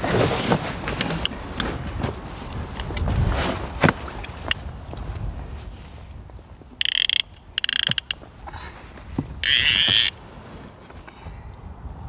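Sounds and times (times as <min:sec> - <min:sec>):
fishing reel drag ratcheting: 0:06.8 - 0:08.2, 0:09.4 - 0:10.1.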